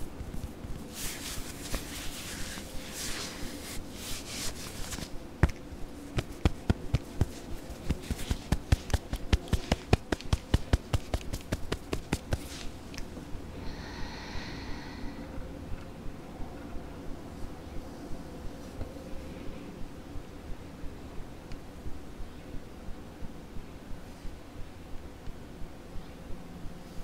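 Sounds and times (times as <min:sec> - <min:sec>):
fingertips tapping on lens: 0:04.2 - 0:13.1
fingertips rubbing on camera lens: 0:06.2 - 0:12.7.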